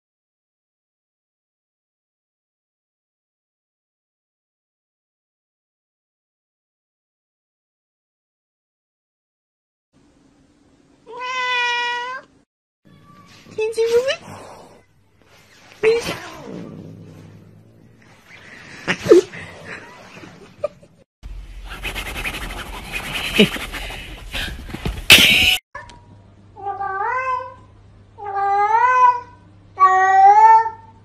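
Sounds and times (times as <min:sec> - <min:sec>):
cat meowing: 0:11.1 - 0:12.3, 0:28.2 - 0:30.9
noisy rustling and bumping: 0:23.3 - 0:25.6.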